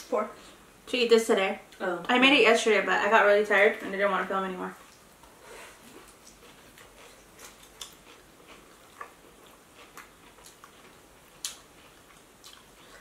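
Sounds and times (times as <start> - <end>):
people chewing food: 4.7 - 13.0.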